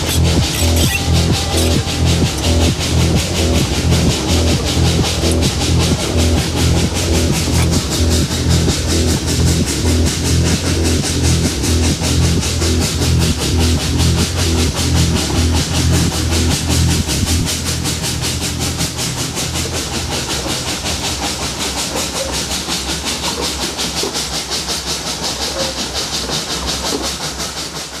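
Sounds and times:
music bass notes: 0.0s - 20.2s
steady steam hiss: 0.0s - 28.0s
steam locomotive exhaust beats: 0.0s - 28.0s.

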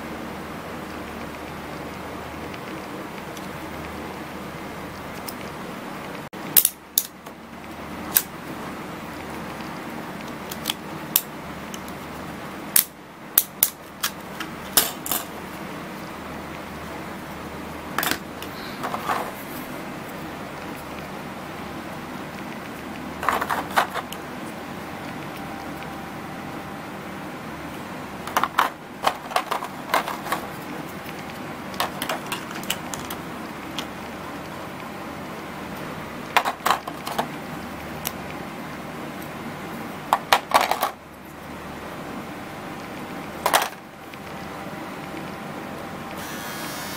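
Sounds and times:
low hum: 15.2s - 29.1s
plastic attachments clattering on tray: 23.2s - 24.1s, 28.3s - 30.5s, 40.2s - 41.0s.

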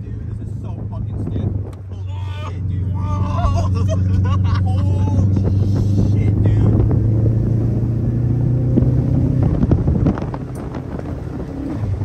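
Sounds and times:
car engine from inside cabin: 0.0s - 12.0s.

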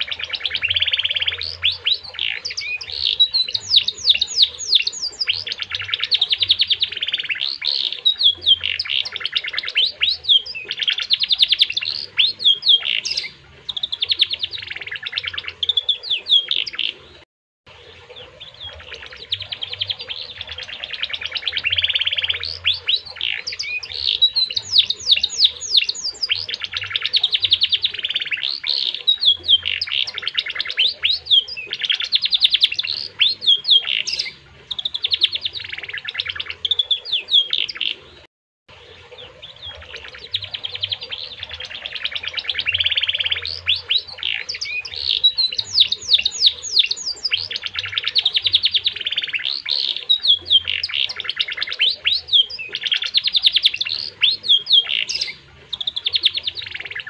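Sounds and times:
canary singing trills: 0.0s - 57.0s.

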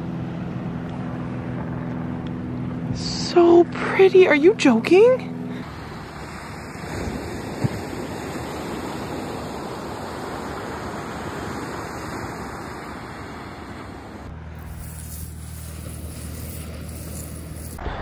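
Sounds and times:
car cabin road hum: 1.8s - 6.8s
surf at shoreline: 4.6s - 14.3s.

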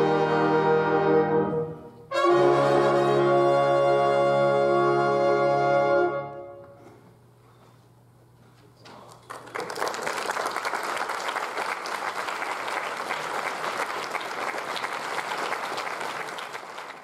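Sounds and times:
audience applauding: 8.9s - 17.0s.

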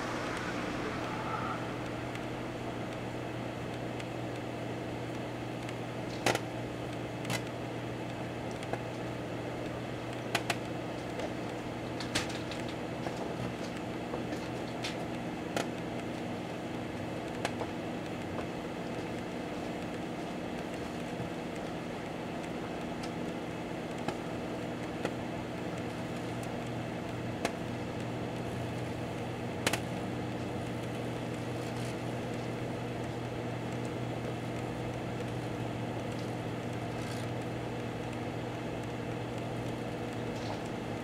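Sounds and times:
microwave oven humming: 0.0s - 41.0s
pops and crackles of burning radio: 18.8s - 40.8s.

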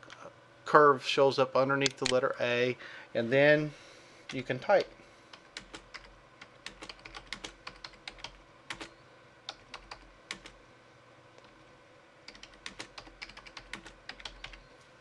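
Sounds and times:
keyboard typing: 4.3s - 8.9s, 9.5s - 10.6s, 12.3s - 14.7s.

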